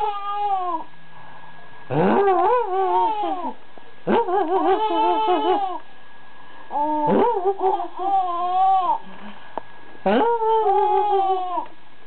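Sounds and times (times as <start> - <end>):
baby girl laughing: 4.3 - 5.8.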